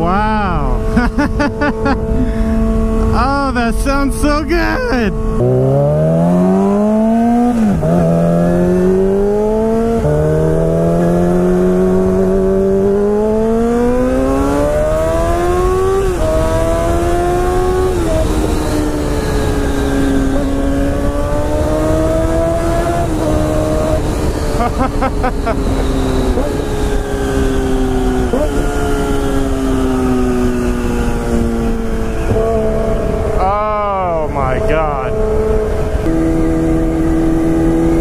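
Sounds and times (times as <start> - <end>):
motorcycle engine accelerating: 0.0 - 38.0.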